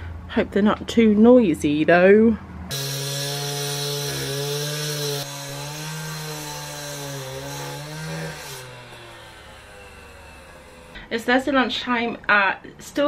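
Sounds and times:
disc grinding through concrete: 2.7 - 11.0
disc cutter motor: 8.6 - 11.0.

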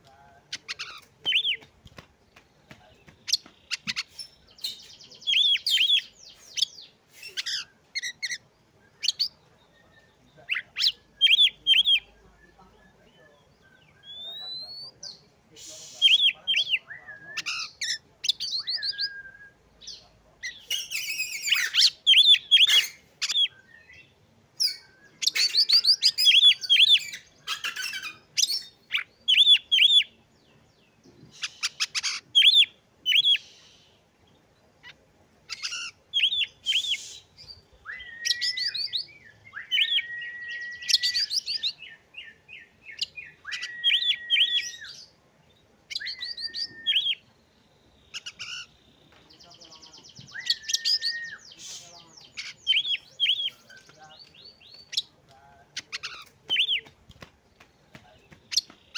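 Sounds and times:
bird chirping and whistling: 15.7 - 19.6, 20.7 - 24.0, 35.5 - 42.0, 42.9 - 45.1, 45.9 - 47.2, 50.2 - 53.8.

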